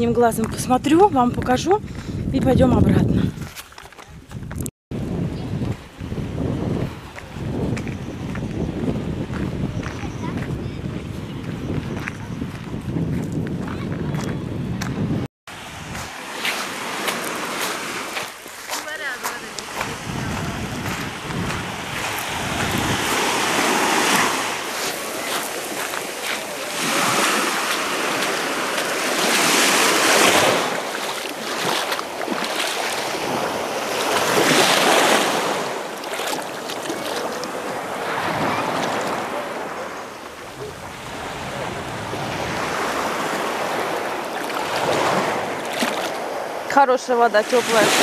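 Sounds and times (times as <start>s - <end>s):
waves washing over pebbles: 15.5s - 48.0s.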